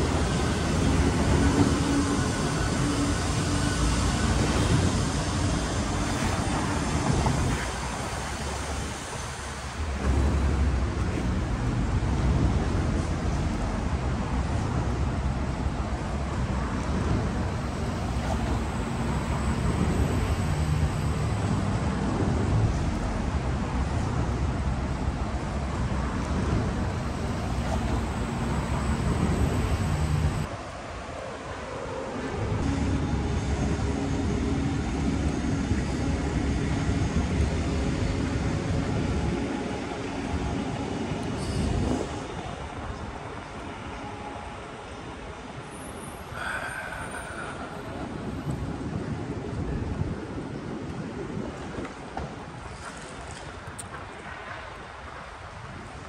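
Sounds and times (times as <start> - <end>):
passing cars rumble: 0.0 - 30.7.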